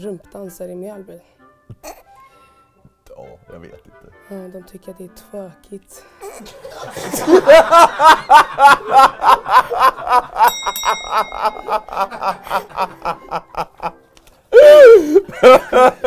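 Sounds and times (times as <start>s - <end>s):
man laughing: 6.4s - 14.0s, 14.6s - 16.0s
man crying out: 14.5s - 15.6s.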